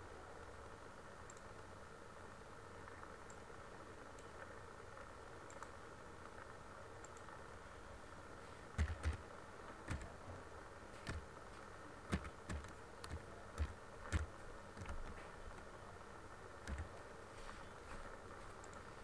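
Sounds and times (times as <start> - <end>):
computer mouse clicking: 1.2 - 1.5, 5.4 - 5.8, 7.0 - 7.4, 8.7 - 9.2, 9.8 - 10.2, 11.0 - 11.3, 12.1 - 15.7, 16.6 - 16.9, 18.6 - 18.9.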